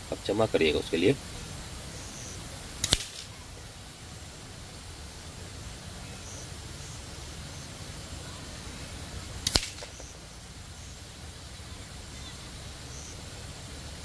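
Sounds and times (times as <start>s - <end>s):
pellet striking clay target: 2.8s - 3.3s, 9.4s - 10.1s.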